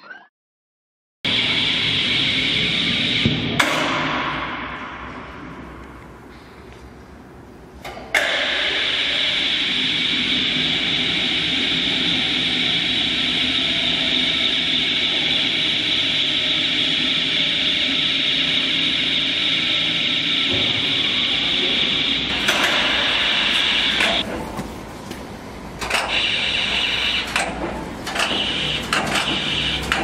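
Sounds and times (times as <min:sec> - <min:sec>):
electric cart drive running: 0:08.4 - 0:24.2, 0:25.6 - 0:30.0.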